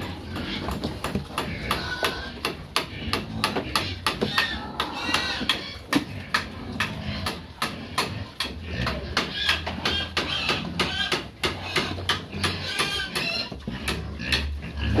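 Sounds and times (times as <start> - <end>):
piglets squealing: 1.5 - 2.4, 3.8 - 5.9, 9.1 - 13.6.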